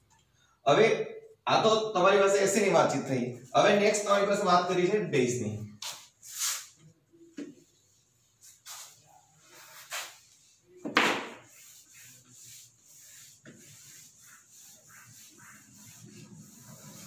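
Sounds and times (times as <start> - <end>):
eraser wiping whiteboard: 5.8 - 6.8, 7.6 - 17.0.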